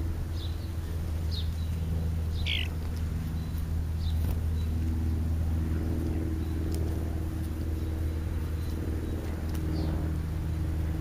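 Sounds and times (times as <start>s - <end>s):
high bird calls: 0.3s - 4.8s.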